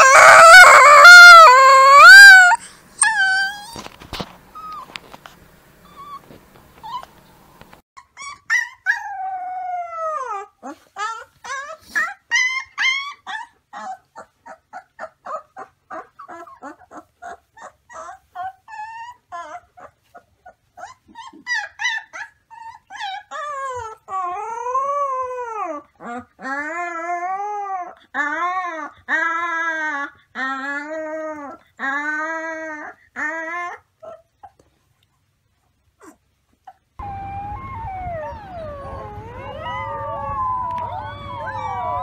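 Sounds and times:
puppy howling: 0.0 - 3.9, 37.0 - 42.0
puppy yipping and whimpering: 0.0 - 3.9, 4.6 - 5.0, 5.9 - 7.3, 8.0 - 34.8, 36.0 - 42.0.

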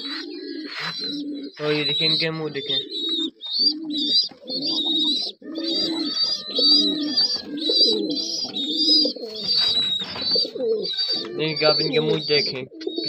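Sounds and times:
pigeons cooing: 0.0 - 13.0
fast high chirps: 0.8 - 12.6.

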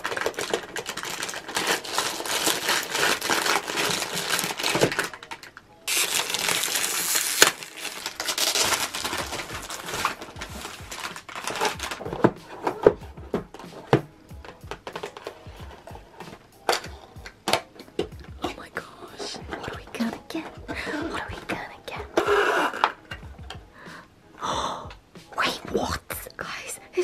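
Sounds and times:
wrapper snapping: 0.0 - 12.1
foil wrapper crinkling: 0.0 - 13.0.

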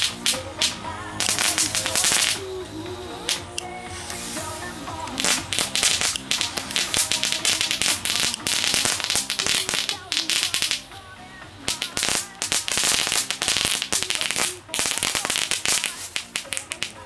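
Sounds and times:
firecrackers cracking and popping: 0.0 - 17.0.

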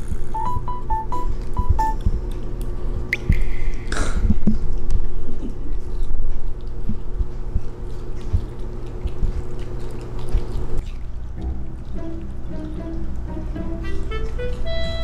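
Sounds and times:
soft background music: 0.4 - 2.0, 11.4 - 15.0.

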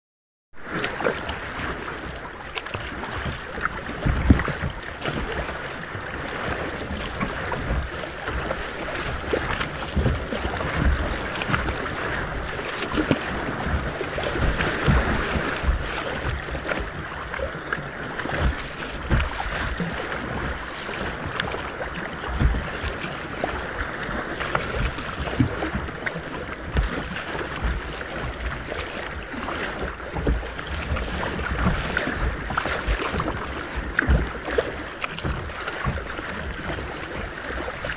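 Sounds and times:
water splashing along kayak bow: 0.6 - 37.9
wind buffeting microphone: 0.6 - 37.9.

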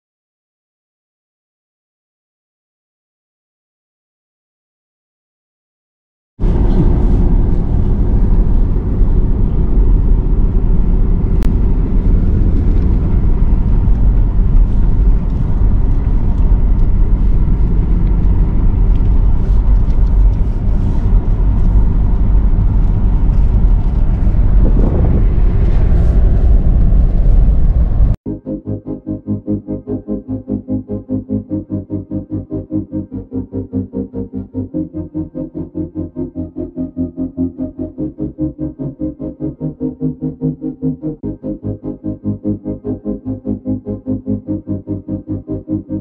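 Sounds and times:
vehicle engine and tyres rumbling: 6.4 - 28.2.

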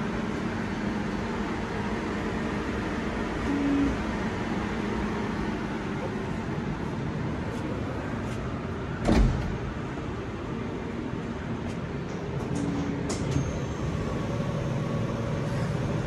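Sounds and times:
machine hum: 0.0 - 16.0
sliding door shutting with thud: 9.0 - 9.8.

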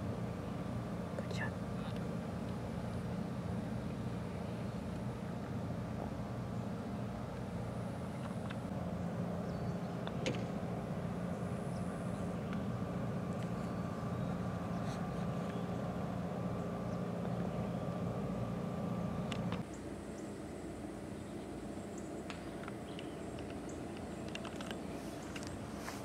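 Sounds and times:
low engine drone: 0.0 - 26.0
putter striking golf ball: 10.0 - 10.6.

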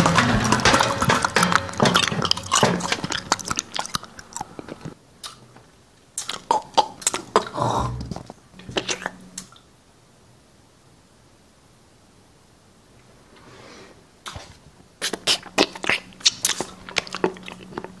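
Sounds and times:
chewing and crunching: 0.0 - 5.4, 6.2 - 9.2, 14.2 - 18.0
mouth clicks: 6.2 - 9.5, 15.0 - 18.0.

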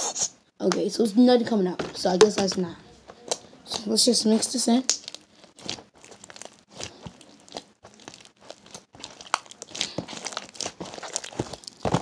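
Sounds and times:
hands squishing sticky slime: 3.2 - 12.0.

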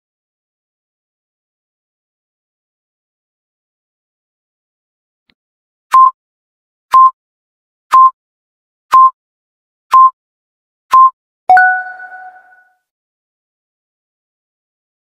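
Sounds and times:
short countdown beeps: 5.9 - 6.2, 6.9 - 7.2, 7.9 - 8.2, 8.9 - 9.2, 9.9 - 10.2, 10.9 - 12.6
two-tone chime: 11.5 - 12.6.

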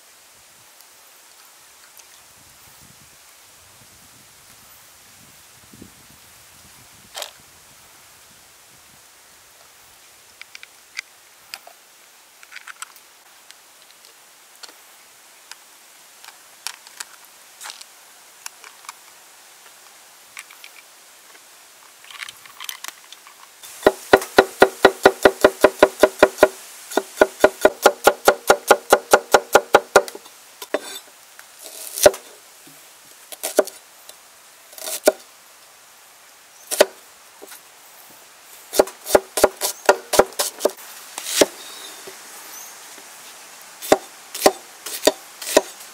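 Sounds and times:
cleaver chopping on a wooden board: 23.8 - 30.2, 33.4 - 33.8, 36.7 - 37.0, 38.7 - 41.5, 43.8 - 45.8
knife cutting an onion: 31.7 - 32.2, 33.4 - 33.8, 38.7 - 41.6, 43.8 - 45.8.

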